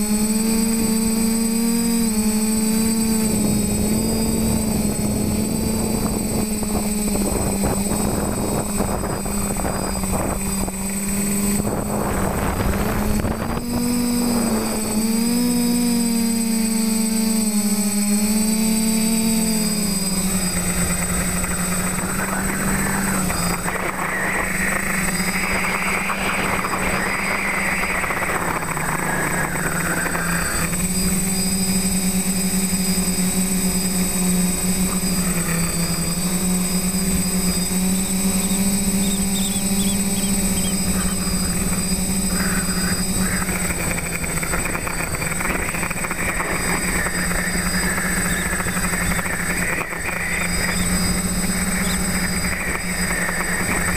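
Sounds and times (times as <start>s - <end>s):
quadcopter propellers buzzing: 0.0s - 53.9s
rushing air noise: 20.2s - 31.2s.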